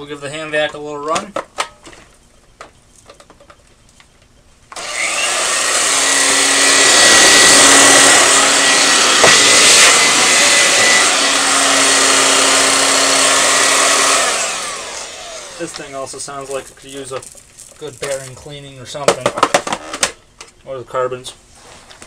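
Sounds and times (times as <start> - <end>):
vacuum cleaner motor whine: 4.7 - 16.5.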